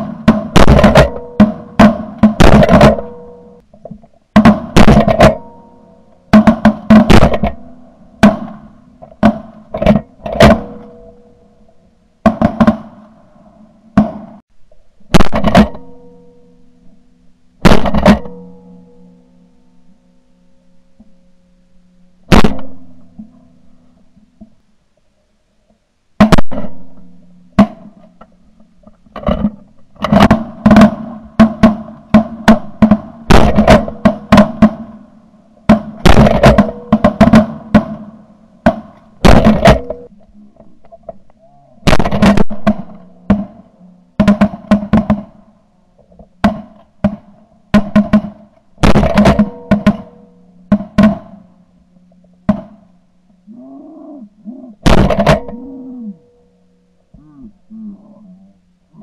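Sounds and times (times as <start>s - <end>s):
shotgun blasts: 0.0s - 3.5s, 4.4s - 5.6s, 6.3s - 10.9s, 15.1s - 15.9s, 17.6s - 18.5s, 22.3s - 23.0s, 30.1s - 35.0s, 35.7s - 40.1s, 41.8s - 43.6s, 46.4s - 51.4s, 54.8s - 55.5s.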